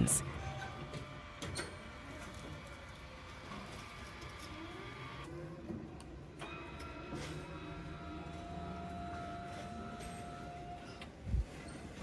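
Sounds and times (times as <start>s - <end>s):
faint electric actuator whir: 0.2s - 11.5s.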